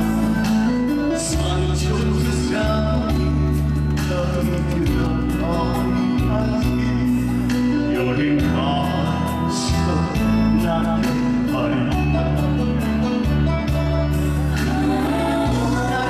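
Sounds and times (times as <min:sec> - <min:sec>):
man singing into microphone: 0:00.0 - 0:13.6
backing track with bass and keyboard: 0:00.0 - 0:16.0.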